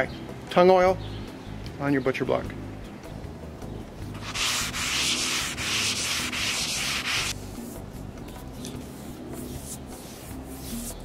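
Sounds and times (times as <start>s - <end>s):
scouring pad scrubbing wood: 4.2s - 7.3s.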